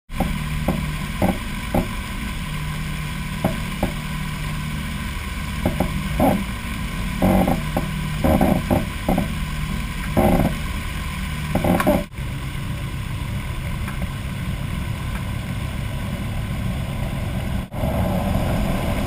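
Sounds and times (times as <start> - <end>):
low hum: 0.1 - 19.0
steady hiss: 0.1 - 19.0
knocks and bumps: 5.6 - 6.4, 7.2 - 9.3, 10.2 - 10.6, 11.6 - 12.1.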